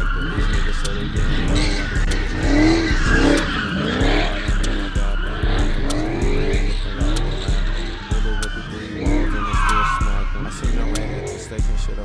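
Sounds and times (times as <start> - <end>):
car engine revving: 0.0 - 12.0
tires squealing: 0.0 - 12.0.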